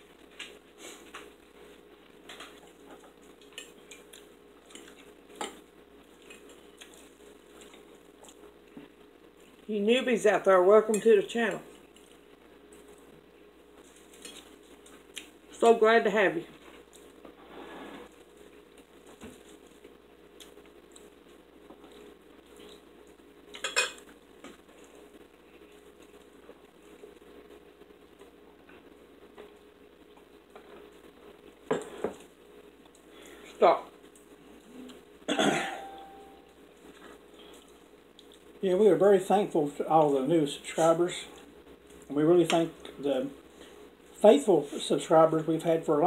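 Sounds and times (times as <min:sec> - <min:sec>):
forks clinking on ceramic plates: 0:23.6 - 0:24.0.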